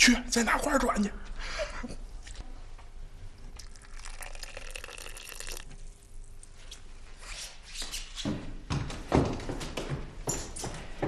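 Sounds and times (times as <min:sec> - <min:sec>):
water pouring into glass: 0:03.6 - 0:06.2.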